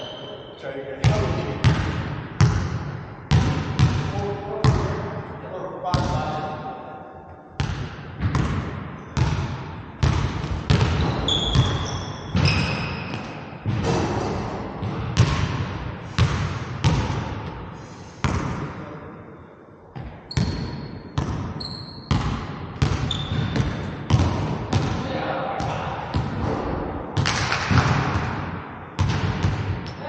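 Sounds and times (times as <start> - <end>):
sneakers squeaking: 0.0 - 0.6, 10.0 - 13.8, 20.0 - 25.0
basketball bouncing on wooden floor: 3.3 - 4.8, 7.6 - 14.1, 14.8 - 17.6, 20.0 - 25.0, 27.2 - 29.9.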